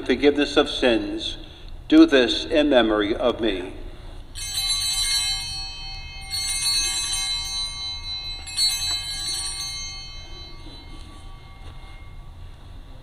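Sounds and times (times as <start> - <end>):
altar bells jingling: 4.3 - 13.0.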